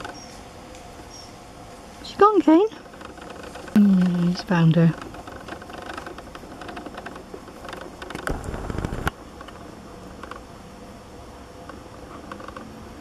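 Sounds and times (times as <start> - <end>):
outdoor background: 0.0 - 13.0
dry twigs crackling: 2.8 - 9.6
low rumble on microphone: 2.8 - 10.5.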